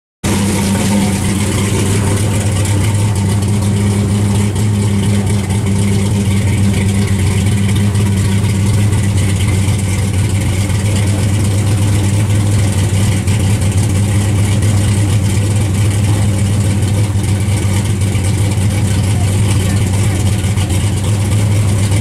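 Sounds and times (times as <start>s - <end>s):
car engine idling: 0.2s - 22.0s.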